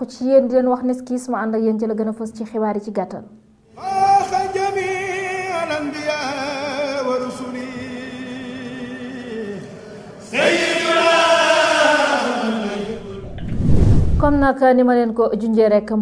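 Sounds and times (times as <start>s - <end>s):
news jingle with chanted singing: 10.3s - 13.2s.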